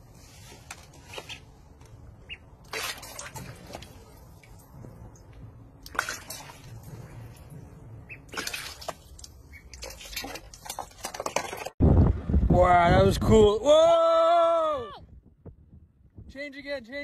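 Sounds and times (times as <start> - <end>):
duckling splashing in water: 2.3 - 4.6, 8.0 - 10.8.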